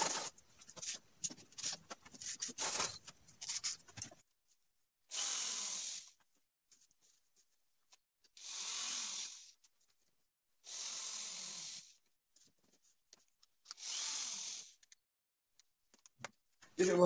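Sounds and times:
electric drill drilling through wood: 5.1s - 6.2s, 8.4s - 9.5s, 10.6s - 12.0s, 13.7s - 14.8s.

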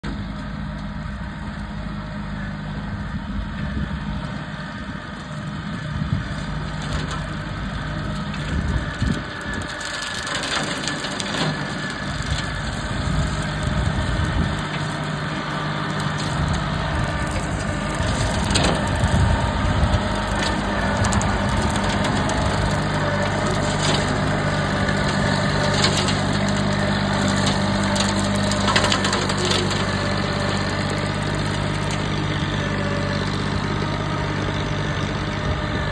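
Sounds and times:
tractor diesel engine running: 0.0s - 35.9s
brush and wood cracking: 6.2s - 34.0s.

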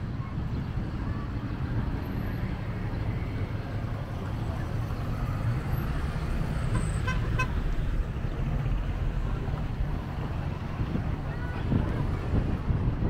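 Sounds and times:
road traffic passing: 0.0s - 13.0s
vehicle horn toots: 6.7s - 7.6s.

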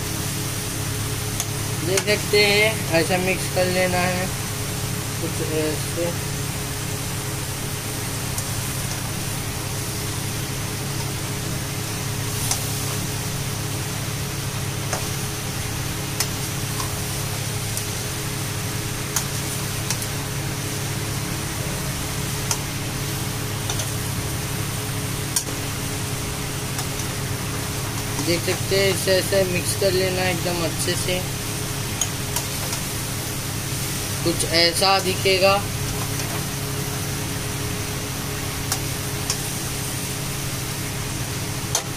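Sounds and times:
steady machine hum: 0.0s - 41.9s
spatula stirring food in pan: 21.4s - 28.7s, 31.3s - 34.2s, 38.3s - 40.4s.

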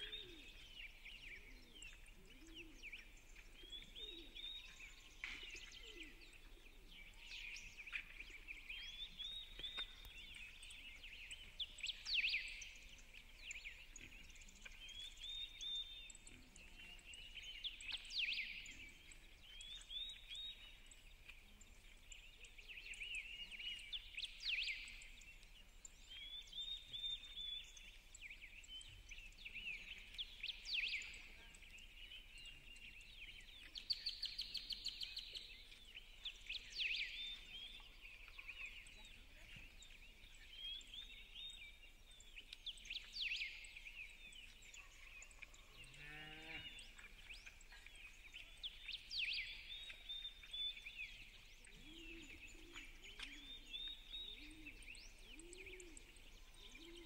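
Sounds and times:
low cooing calls: 0.0s - 0.8s, 1.4s - 3.1s, 51.7s - 57.0s
small birds chirping and singing: 0.0s - 57.0s.

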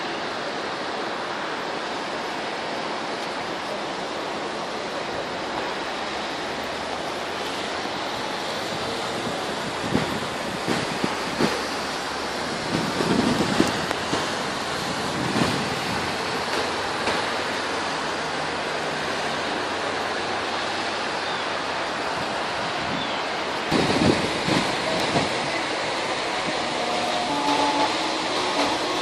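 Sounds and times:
rainstorm and floodwater rushing: 0.0s - 29.0s
wind buffeting microphone: 8.4s - 17.2s, 22.1s - 26.8s.

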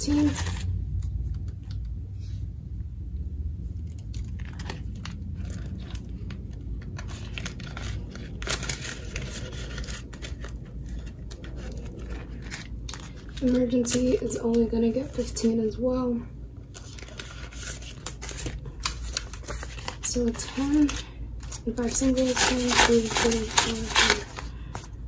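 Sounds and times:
paper banknotes rustling: 0.0s - 1.2s, 3.9s - 15.6s, 16.7s - 25.0s
plastic binder pockets crinkling: 3.9s - 15.3s, 16.7s - 25.0s.

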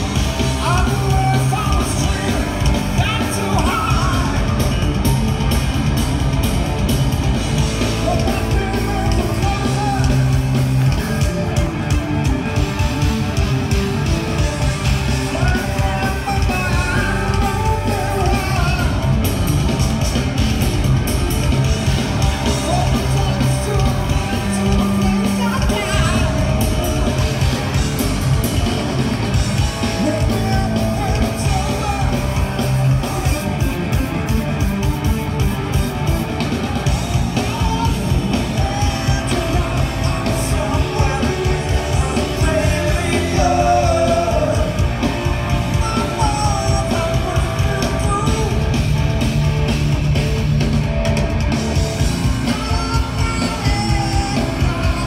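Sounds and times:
distorted electric guitar: 0.0s - 55.0s
drum kit: 0.0s - 55.0s
electric bass: 0.0s - 55.0s
man singing: 0.4s - 4.6s, 8.0s - 10.6s, 15.2s - 19.1s, 22.5s - 26.6s, 29.9s - 33.5s, 37.4s - 45.0s, 45.6s - 48.7s, 52.4s - 55.0s.

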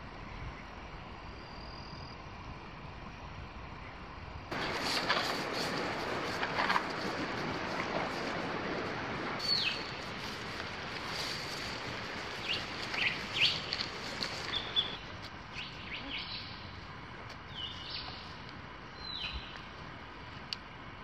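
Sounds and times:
footsteps through long grass: 4.5s - 16.1s
grass rustling: 4.5s - 20.8s.

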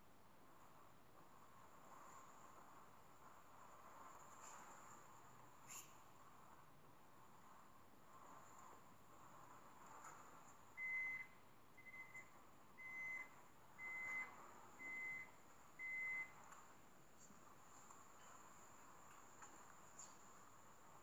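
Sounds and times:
faint hiss: 0.0s - 21.0s
short electronic beeps: 10.8s - 16.4s.

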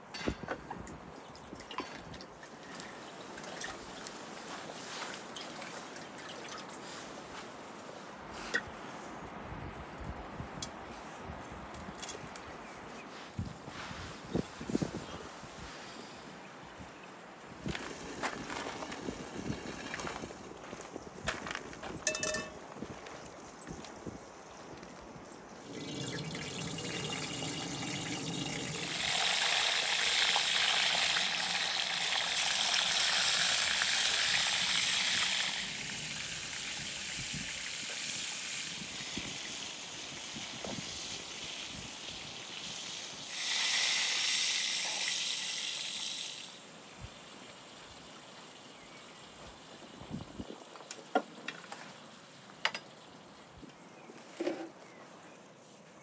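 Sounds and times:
oil pouring into frying pan: 25.6s - 38.6s.

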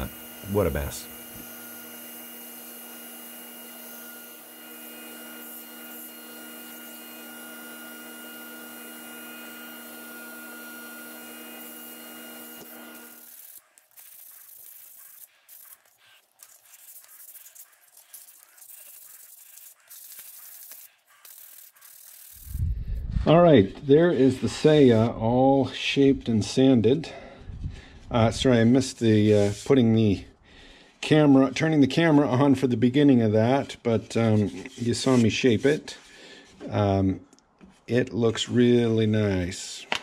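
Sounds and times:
sandpaper rubbing on wood: 0.0s - 1.5s, 12.6s - 22.6s, 29.2s - 29.7s, 33.5s - 35.8s
belt grinder running: 0.0s - 22.6s.

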